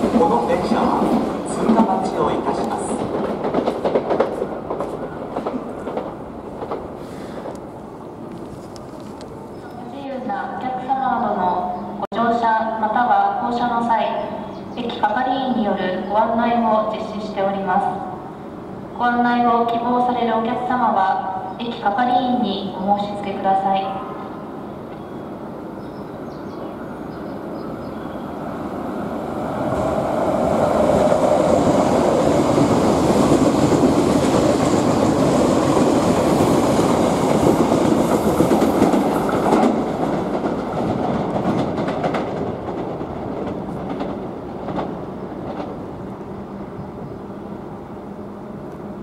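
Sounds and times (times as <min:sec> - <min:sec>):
train wheels on rails: 0:00.0 - 0:10.3, 0:27.0 - 0:46.2.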